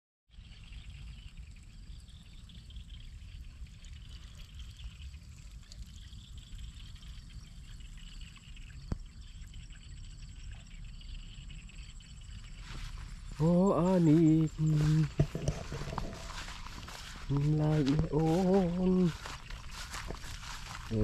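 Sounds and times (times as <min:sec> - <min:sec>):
insects chirping shrilly: 0:06.0 - 0:21.0
wind buffeting microphone: 0:12.6 - 0:21.0.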